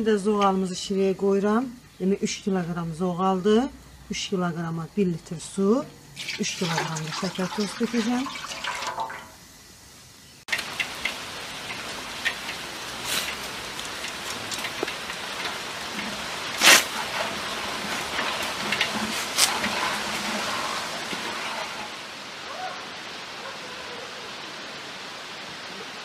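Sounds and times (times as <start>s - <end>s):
steady rain: 6.0s - 26.0s.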